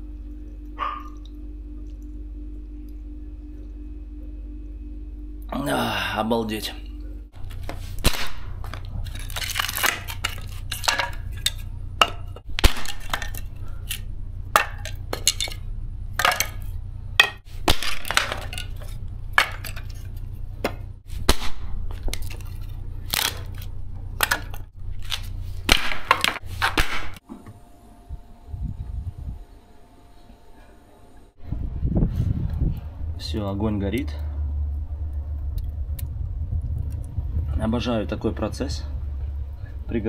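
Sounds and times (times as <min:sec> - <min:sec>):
low rumble: 0:00.0 - 0:25.7, 0:28.0 - 0:29.6, 0:31.4 - 0:40.0
wooden slats snapping: 0:08.0 - 0:11.2, 0:12.1 - 0:14.0, 0:23.1 - 0:27.2.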